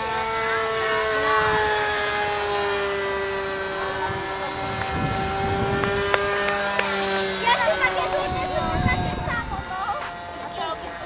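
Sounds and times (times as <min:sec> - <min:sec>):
model plane motor whine: 0:00.0 - 0:11.0.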